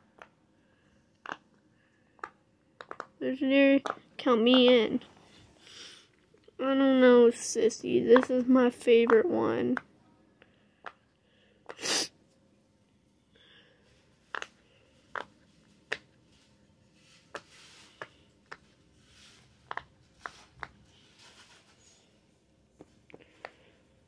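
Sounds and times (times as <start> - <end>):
fidget toy bubbles popping: 2.2 - 3.2, 3.8 - 4.8.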